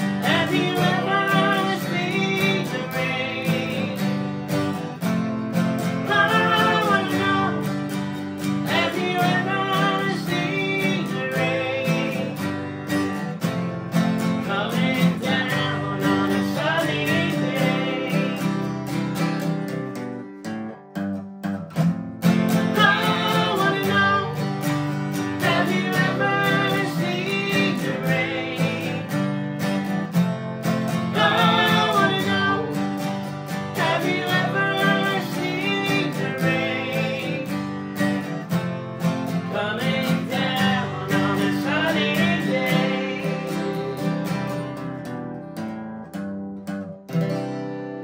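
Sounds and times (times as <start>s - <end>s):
man and woman singing: 0.0s - 4.3s, 5.8s - 12.7s, 14.4s - 18.8s, 22.6s - 29.5s, 30.9s - 38.2s, 39.3s - 44.7s
acoustic guitars strummed: 0.0s - 48.0s.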